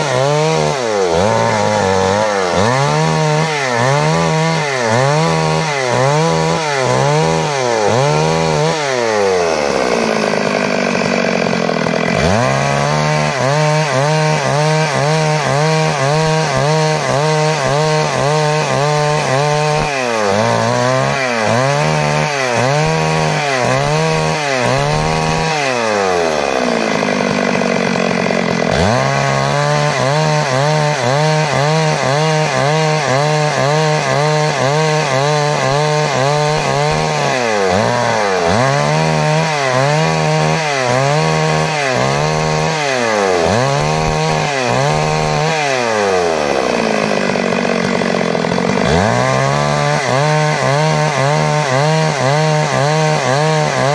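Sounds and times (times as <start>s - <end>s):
chainsaw cutting timber: 0.0s - 53.9s.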